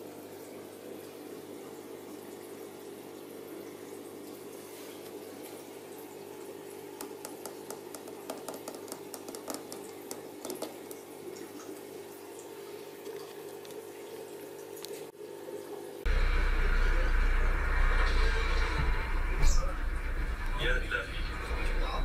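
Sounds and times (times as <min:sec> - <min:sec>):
aquarium air bubbles popping: 0:06.8 - 0:14.9
steady low hum: 0:16.0 - 0:22.0.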